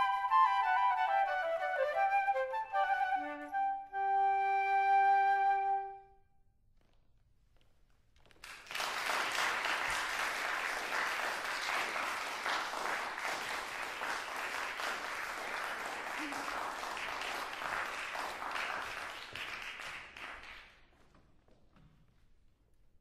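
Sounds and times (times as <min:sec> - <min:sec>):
flutes holding a note: 0:00.0 - 0:06.2
audience applause: 0:08.4 - 0:20.8.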